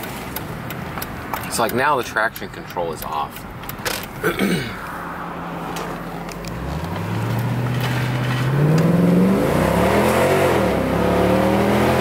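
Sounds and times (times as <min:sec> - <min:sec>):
car engine accelerating: 0:05.1 - 0:12.0.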